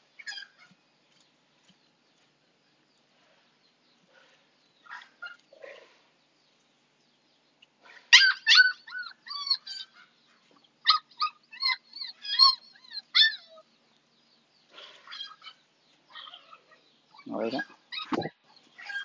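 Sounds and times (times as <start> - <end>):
puppy whimpering and yelping: 8.1 - 10.0, 10.9 - 13.7, 17.2 - 19.0.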